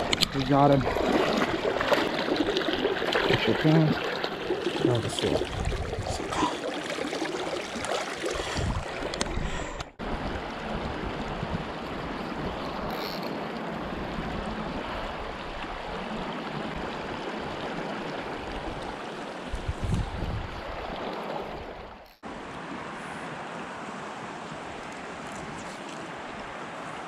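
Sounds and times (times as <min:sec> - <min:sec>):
water rushing over stones: 0:00.0 - 0:09.4.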